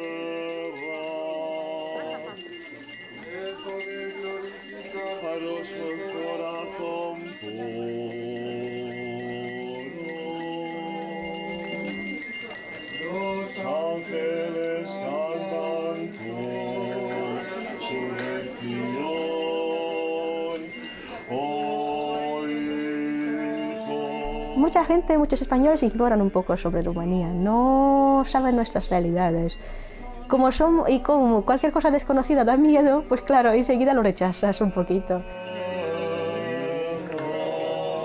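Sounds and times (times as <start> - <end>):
church chant: 0.0 - 25.4, 34.5 - 38.0
small bells jingling: 0.0 - 38.0.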